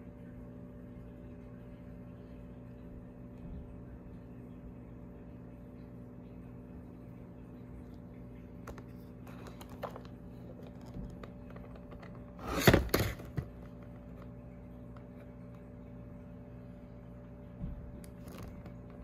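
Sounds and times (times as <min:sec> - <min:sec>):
steady low hum: 0:00.0 - 0:19.0
plastic packaging crackle: 0:09.2 - 0:14.3, 0:18.0 - 0:19.0.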